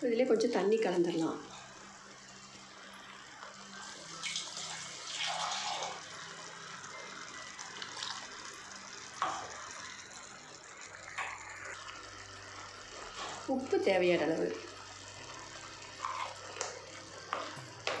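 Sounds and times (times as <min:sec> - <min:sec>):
water pouring into pan: 0:03.4 - 0:18.0
gravy bubbling: 0:09.4 - 0:14.8.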